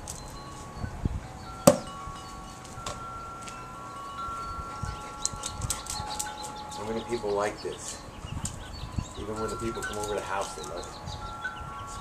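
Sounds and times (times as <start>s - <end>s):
wind chimes ringing: 0.0s - 12.0s.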